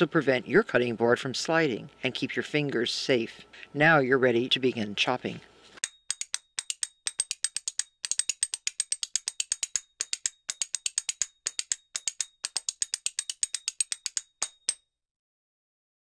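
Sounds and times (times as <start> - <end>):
rapid sharp clicks: 6.1 - 14.8.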